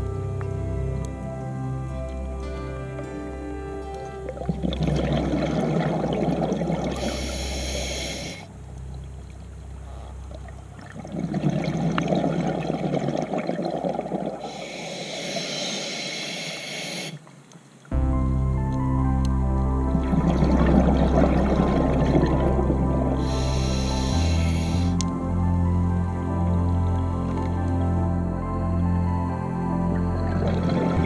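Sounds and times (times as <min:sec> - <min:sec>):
background music: 0:00.0 - 0:11.0, 0:17.9 - 0:31.0
exhaled bubbles rumbling: 0:04.3 - 0:07.8, 0:08.5 - 0:14.5, 0:19.7 - 0:25.2, 0:29.8 - 0:31.0
diver breathing through regulator: 0:06.9 - 0:08.5, 0:14.4 - 0:17.2, 0:23.2 - 0:25.1.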